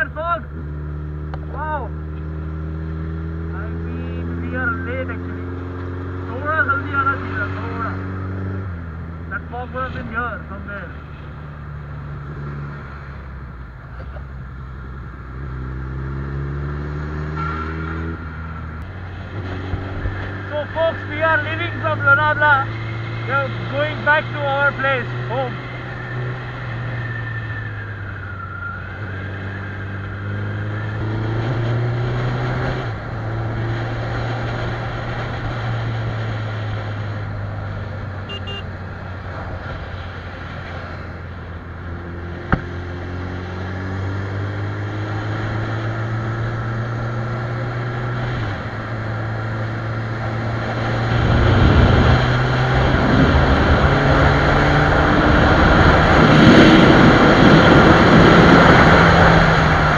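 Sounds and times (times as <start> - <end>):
motorcycle engine accelerating: 0.0 - 10.7, 11.3 - 59.9
wind rush on microphone: 50.6 - 59.9.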